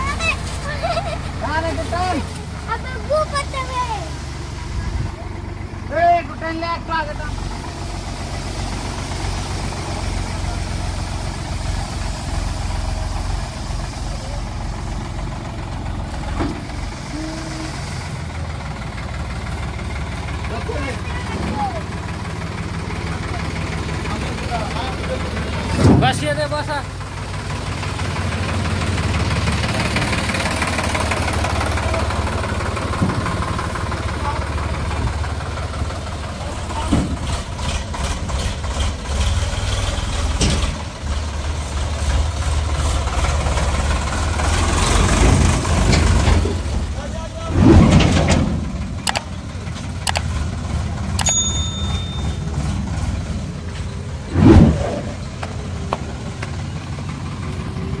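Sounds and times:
diesel tractor engine running: 0:00.0 - 0:58.0
hydraulic ram tipping trailer: 0:00.0 - 0:58.0
brief loud engine burst: 0:47.4 - 0:49.0, 0:54.2 - 0:55.8.

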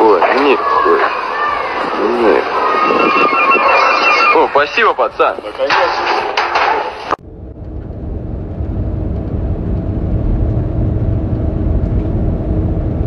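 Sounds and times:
vehicle rumble from inside cabin: 0:07.2 - 0:13.0.

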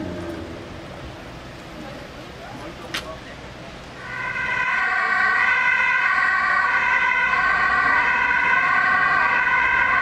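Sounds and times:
ambulance siren wavering: 0:04.0 - 0:10.0.

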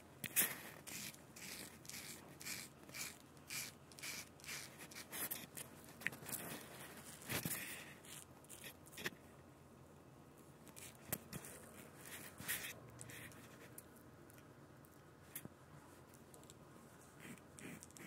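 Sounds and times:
razor scraping stubble: 0:00.3 - 0:09.1, 0:17.2 - 0:18.0.

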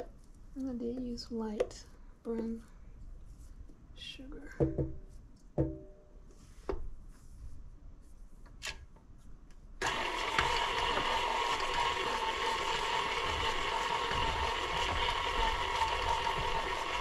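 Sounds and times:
spatula knocking on mixer: 0:05.6 - 0:05.9, 0:13.1 - 0:17.0
stand mixer motor humming: 0:09.8 - 0:17.0.

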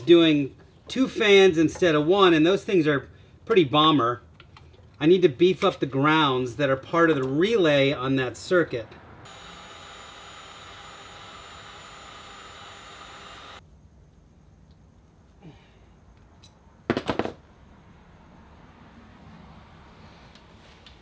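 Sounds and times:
heat gun fan hum: 0:09.3 - 0:13.6.

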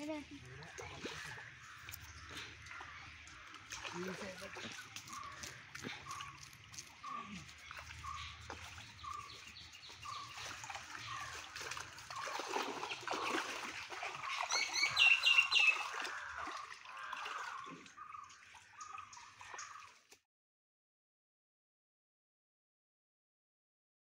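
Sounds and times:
pond water splashing: 0:00.0 - 0:20.2
bird calling: 0:00.1 - 0:12.6, 0:14.1 - 0:20.0
bird chirps: 0:04.2 - 0:11.4, 0:14.2 - 0:16.1.

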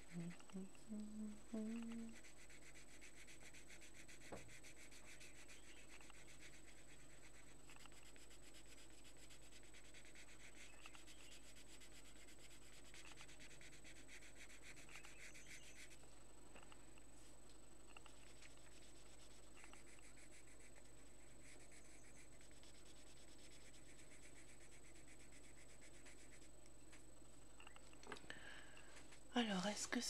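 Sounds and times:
pencil scratching on paper: 0:01.9 - 0:16.0, 0:17.9 - 0:26.6.

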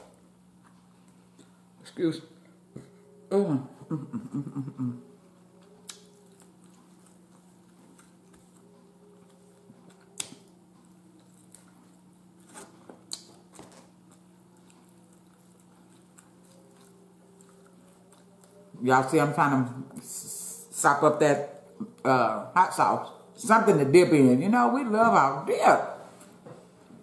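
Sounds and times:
steady low hum: 0:00.0 - 0:27.0
meat pulled and chewed: 0:05.4 - 0:18.8.

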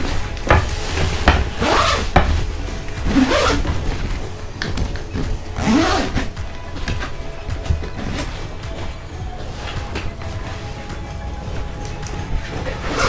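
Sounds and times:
background music with deep bass: 0:00.0 - 0:13.0
nylon bag rustling: 0:00.0 - 0:13.0
zipper pulled: 0:00.7 - 0:02.2, 0:03.0 - 0:06.4, 0:12.6 - 0:13.0.

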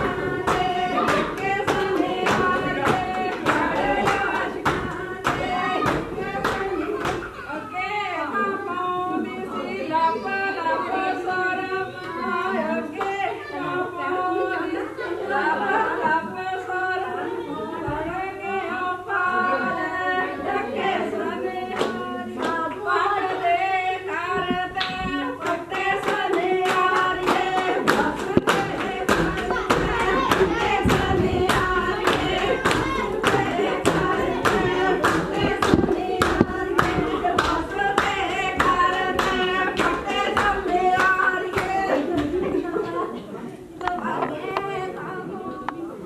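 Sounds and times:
rhythmic hand clapping: 0:00.0 - 0:07.4, 0:21.0 - 0:23.4, 0:24.5 - 0:42.7
women singing together: 0:00.0 - 0:46.0.

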